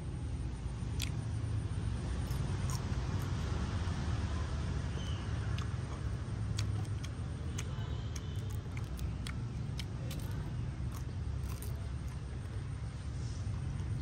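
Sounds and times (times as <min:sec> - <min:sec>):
steady low rumble: 0:00.0 - 0:14.0
crisp clicks and crackles: 0:05.0 - 0:12.7.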